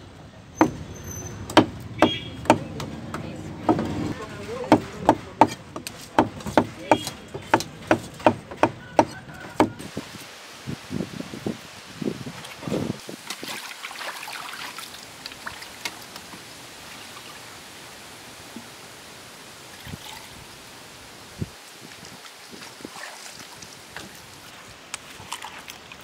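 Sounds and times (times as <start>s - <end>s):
dull knocks: 0.6s - 9.8s
water trickling and splashing: 9.3s - 26.0s.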